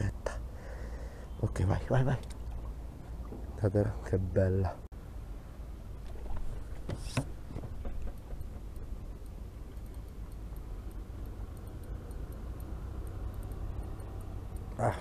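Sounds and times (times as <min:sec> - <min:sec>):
water: 0:00.0 - 0:15.0
faint light ticks: 0:02.0 - 0:03.4, 0:06.0 - 0:15.0
camera handling knocks and rustles: 0:06.4 - 0:08.8.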